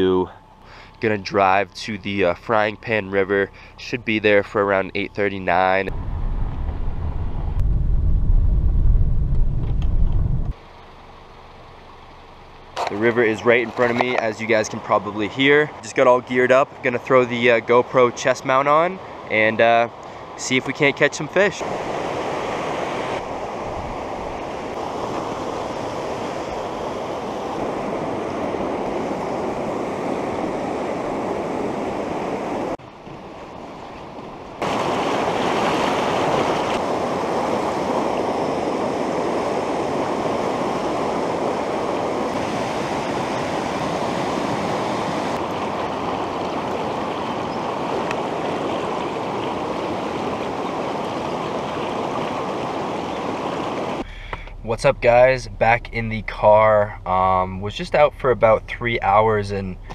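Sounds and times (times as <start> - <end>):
river water rushing over rocks: 34.6 - 54.1.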